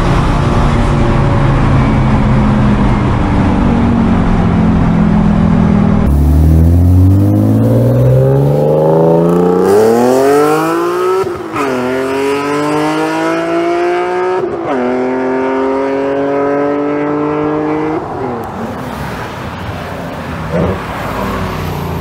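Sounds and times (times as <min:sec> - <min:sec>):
car engine accelerating and passing: 0:00.0 - 0:22.0
car engine running from inside cabin: 0:03.8 - 0:09.8.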